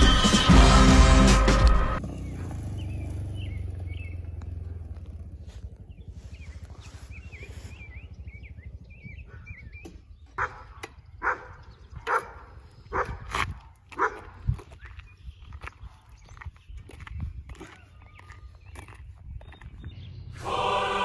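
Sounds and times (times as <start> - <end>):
small motorcycle engine running: 0.6 - 11.9
birds chirping: 2.0 - 21.0
dog barking: 10.4 - 13.3, 13.9 - 14.4.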